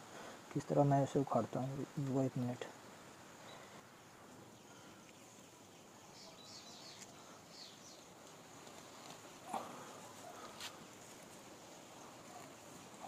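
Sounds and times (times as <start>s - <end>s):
faint bird chirps: 3.4s - 8.2s.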